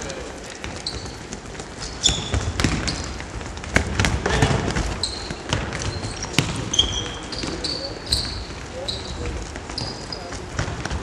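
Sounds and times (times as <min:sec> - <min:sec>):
shoes squeaking: 0:00.0 - 0:11.0
ball kicked on wooden floor: 0:02.1 - 0:06.8.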